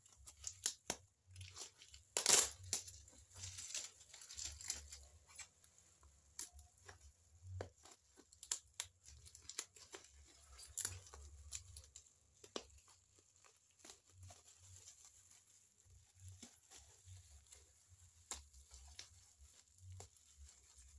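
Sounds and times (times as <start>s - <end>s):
plastic crinkling: 0.0s - 20.9s
tape peeling off plastic: 0.2s - 5.5s
short tearing sounds: 1.8s - 2.9s.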